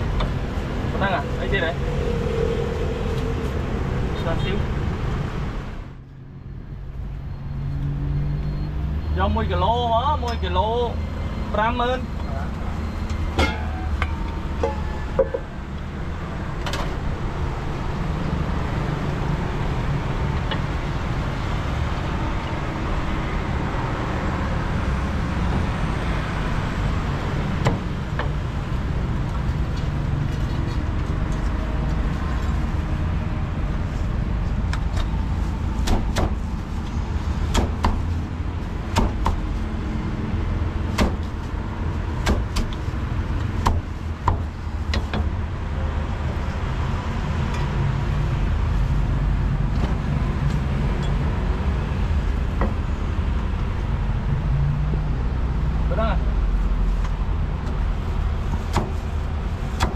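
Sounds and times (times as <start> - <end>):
street traffic rumble: 0.0 - 59.9
cleaver chopping on wooden block: 35.8 - 36.4, 38.9 - 39.4, 42.2 - 42.8.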